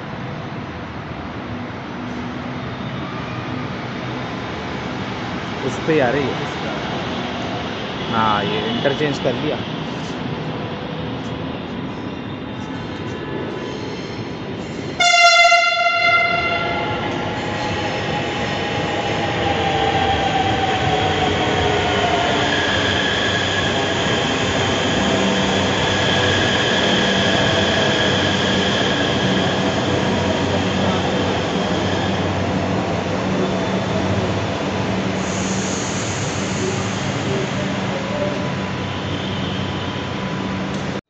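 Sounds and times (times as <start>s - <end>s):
train running noise: 0.0s - 41.0s
train horn blast: 15.0s - 17.1s
train whine falling in pitch: 15.0s - 17.4s.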